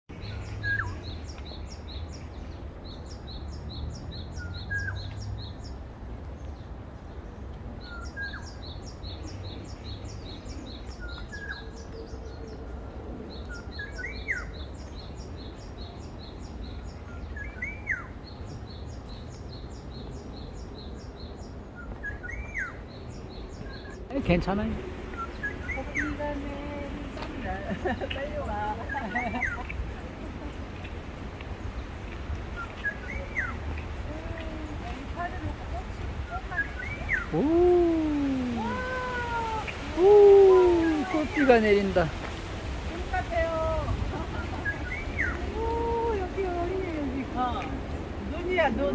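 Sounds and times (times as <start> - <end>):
low wind rumble: 0.1 - 48.9
bird swooping call: 36.5 - 41.4.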